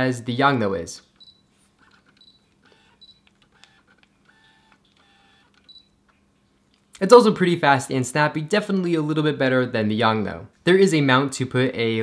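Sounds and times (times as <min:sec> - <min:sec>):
camera focus beeps: 0:01.2 - 0:06.0
lens focus motor whirring: 0:01.2 - 0:06.0.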